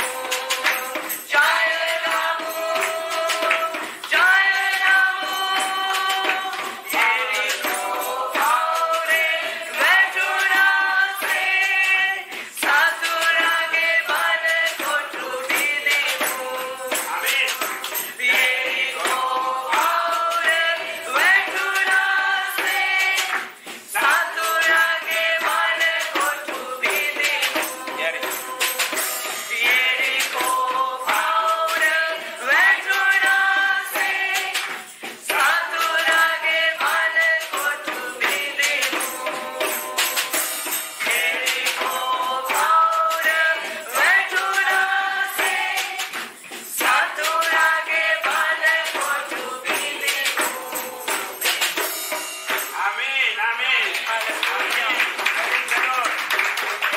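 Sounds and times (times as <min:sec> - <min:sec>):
tambourine shaking: 0:00.0 - 0:56.9
voices singing worship song: 0:00.0 - 0:56.9.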